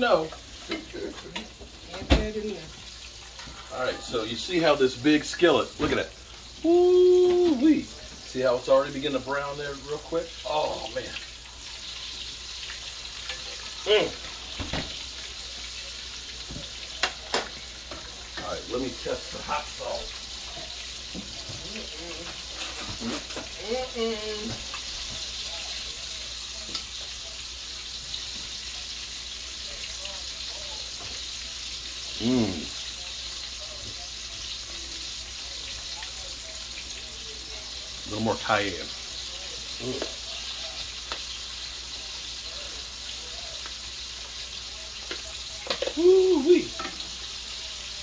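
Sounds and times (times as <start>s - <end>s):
chicken frying in hot oil: 0.0s - 48.0s
man humming: 6.6s - 7.6s, 32.2s - 32.7s.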